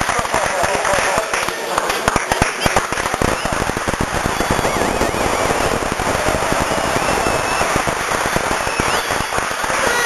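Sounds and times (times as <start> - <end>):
crowd applauding: 0.0 - 10.0
high wavering cheers: 3.2 - 10.0.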